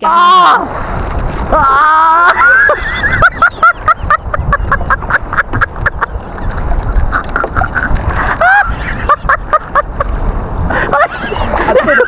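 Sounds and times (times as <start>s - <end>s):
wind and water rumble: 0.0s - 12.0s
man laughing: 2.1s - 6.2s, 7.1s - 10.1s, 10.7s - 12.0s.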